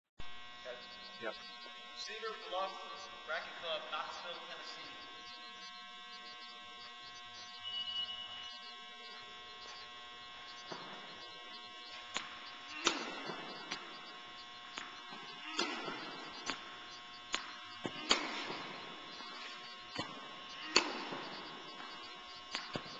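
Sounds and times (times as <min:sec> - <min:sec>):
steady electrical hum: 0:00.2 - 0:22.9
ball bouncing on hard court: 0:10.6 - 0:11.3, 0:11.9 - 0:22.9
tennis racquet striking ball: 0:12.0 - 0:14.0, 0:14.7 - 0:22.9.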